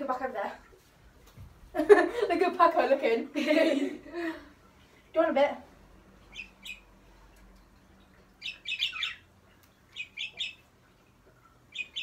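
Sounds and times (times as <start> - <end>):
budgerigar chirping: 6.3 - 6.9, 8.4 - 9.3, 9.9 - 10.6, 11.7 - 12.0.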